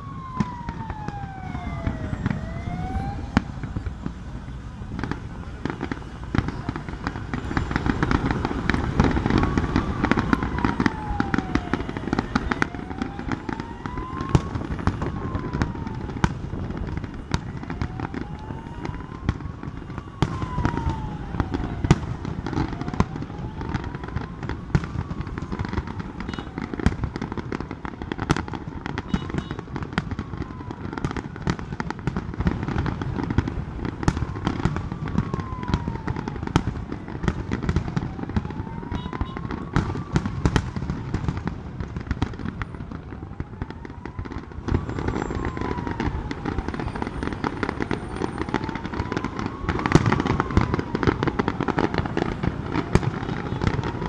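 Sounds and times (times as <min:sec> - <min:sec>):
fireworks bursting: 0:00.0 - 0:54.0.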